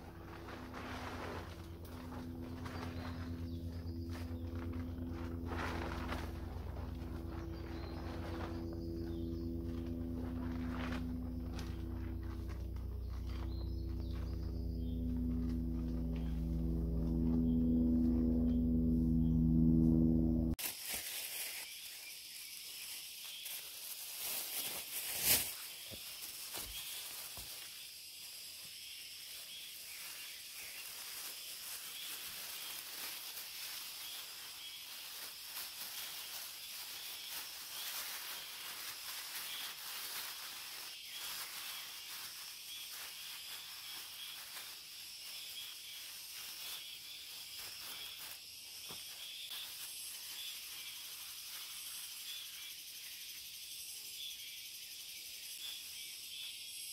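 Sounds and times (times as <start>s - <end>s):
plastic bag crinkling: 0.0s - 17.9s, 20.6s - 22.0s, 23.4s - 27.6s, 30.6s - 44.9s
leaves rustling: 0.0s - 52.6s
high insect buzz: 0.0s - 56.9s.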